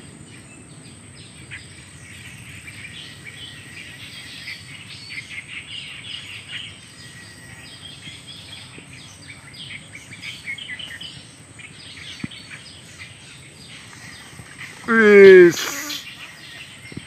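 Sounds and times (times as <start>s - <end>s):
small birds chirping: 0.2s - 17.0s.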